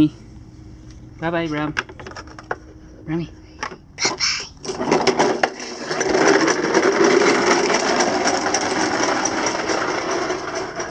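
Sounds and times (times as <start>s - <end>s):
toy lawn mower plastic rattle: 4.2s - 10.9s.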